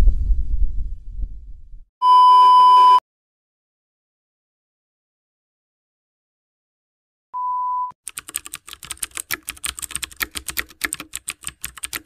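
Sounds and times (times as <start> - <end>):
short steady beep: 2.0 - 3.0, 7.4 - 8.0
keyboard typing clicks: 8.1 - 12.0.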